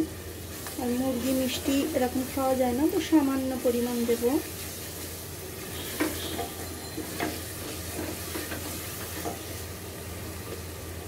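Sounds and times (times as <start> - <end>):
paste sizzling in oil: 0.0 - 11.0
spatula scraping a metal pot: 5.7 - 9.4.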